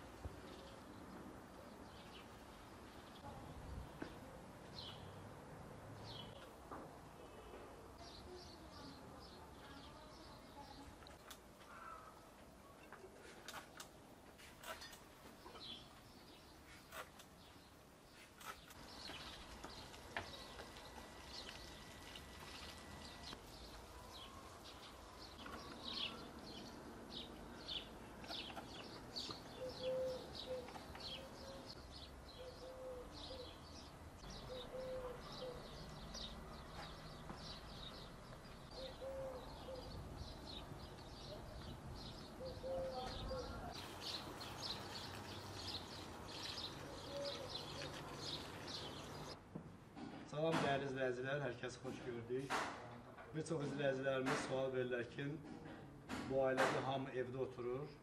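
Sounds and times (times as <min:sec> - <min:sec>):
small birds chirping: 0:00.3 - 0:05.2, 0:06.0 - 0:06.6, 0:07.2 - 0:49.4
dove cooing: 0:29.5 - 0:31.8, 0:32.4 - 0:33.6, 0:34.4 - 0:35.8, 0:38.7 - 0:40.0, 0:42.4 - 0:44.0, 0:46.5 - 0:49.3.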